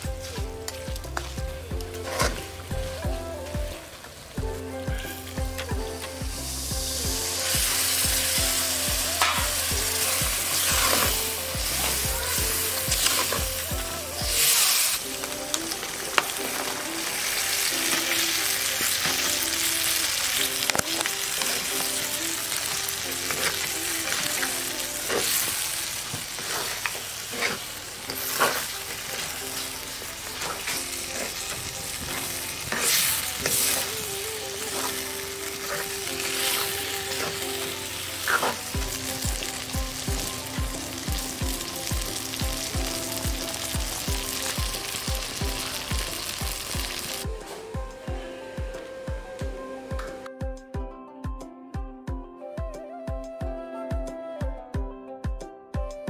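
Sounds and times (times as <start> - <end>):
fish frying in hot oil: 4.1 - 47.3
wooden spatula scraping pan: 26.2 - 33.9, 38.2 - 38.8.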